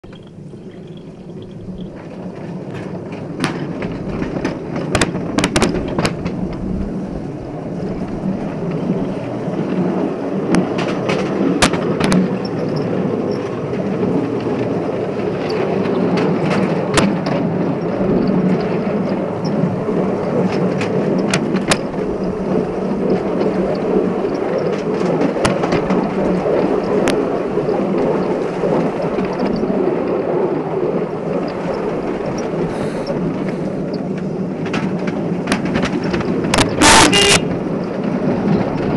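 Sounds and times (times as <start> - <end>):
train wheels rumbling on rail: 0.0 - 38.9
sharp clicks: 36.5 - 37.4.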